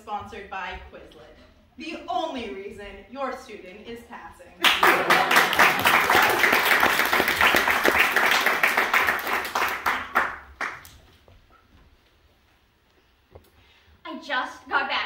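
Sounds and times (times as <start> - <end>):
audience applauding: 4.6 - 11.1.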